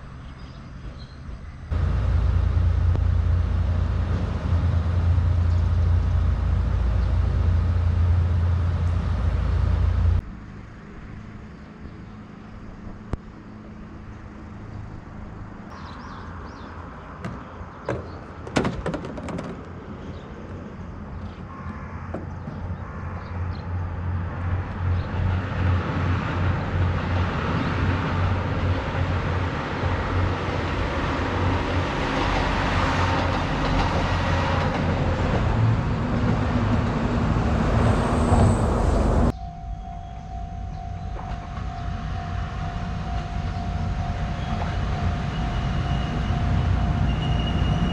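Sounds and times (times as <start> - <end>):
diesel railcar engine running: 0.0 - 10.3, 20.1 - 47.9
approaching railcar engine and wheels: 0.0 - 47.9.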